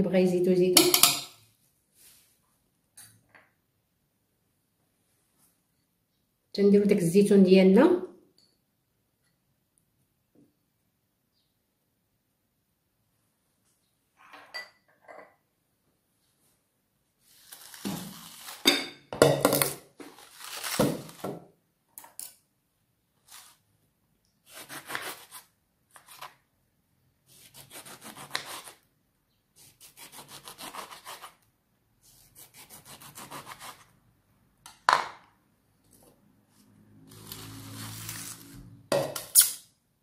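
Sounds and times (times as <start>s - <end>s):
knife sawing through lemon: 27.3s - 28.8s, 29.6s - 31.4s, 32.1s - 33.8s.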